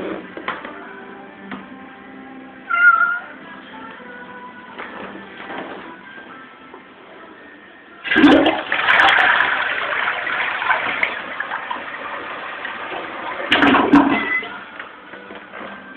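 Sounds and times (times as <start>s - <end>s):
toilet flushing: 8.0s - 14.6s.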